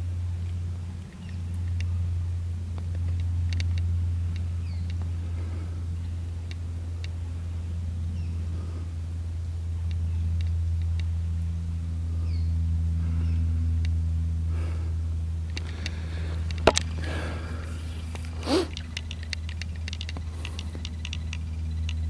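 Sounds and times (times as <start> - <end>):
low hum: 0.0 - 22.0
sharp clicks: 18.0 - 22.0.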